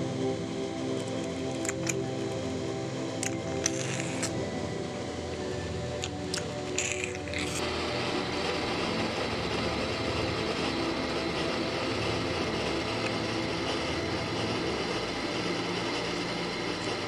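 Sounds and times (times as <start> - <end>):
machine hum and hiss: 0.0 - 17.0.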